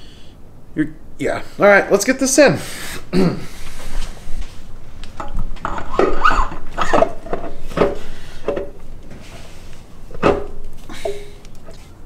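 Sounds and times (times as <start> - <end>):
metal clanks and scrapes: 5.2 - 11.3
short squeaks: 6.0 - 7.0.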